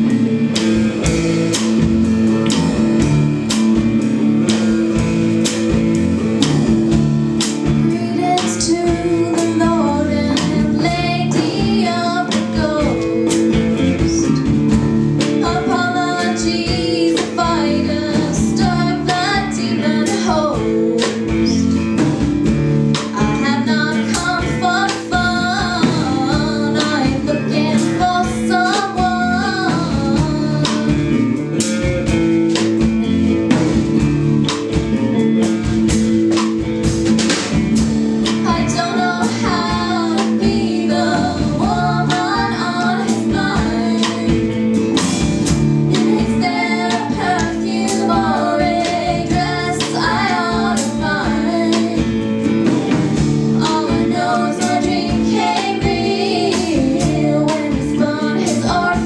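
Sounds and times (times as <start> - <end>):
drum kit beat: 0.0 - 59.0
electric guitars: 0.0 - 59.0
woman singing: 7.7 - 14.6, 15.2 - 21.8, 22.9 - 31.3, 38.2 - 45.0, 45.9 - 52.7, 53.6 - 59.0.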